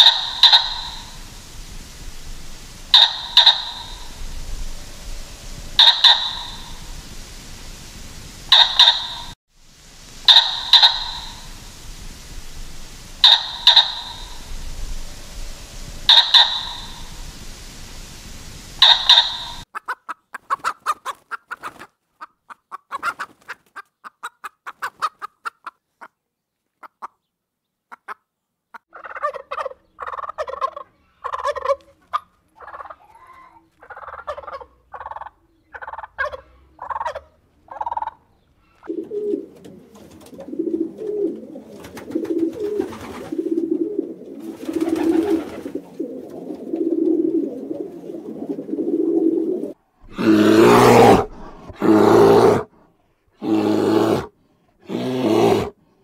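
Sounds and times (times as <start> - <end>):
animal calls: 0.0 - 1.3, 2.8 - 4.2, 5.7 - 6.9, 8.5 - 9.4, 10.2 - 11.5, 13.2 - 14.5, 16.0 - 17.2, 18.8 - 21.8, 50.0 - 52.7
low pulsing animal call: 2.8 - 6.9, 13.2 - 17.2, 50.0 - 52.7.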